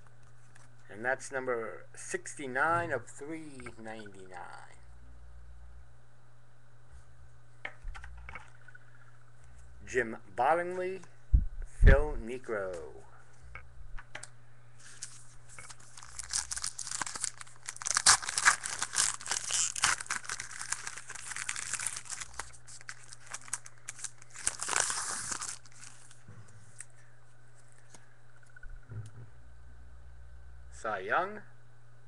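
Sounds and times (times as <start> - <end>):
low electrical hum: 0.0 - 32.0
foil wrapper crinkling: 14.8 - 26.9.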